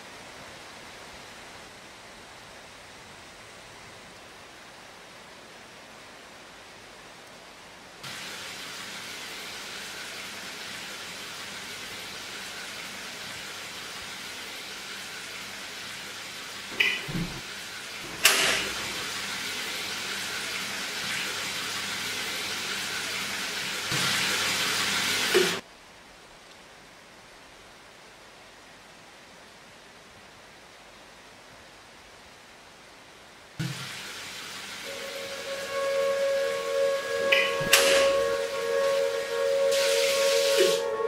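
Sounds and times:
water running from tap: 8.0 - 25.6, 33.6 - 41.0.

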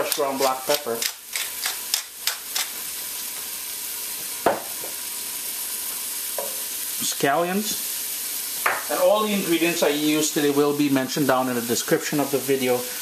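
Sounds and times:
pepper grinder clicking: 0.0 - 2.8
onion and garlic sizzling: 0.0 - 13.0.

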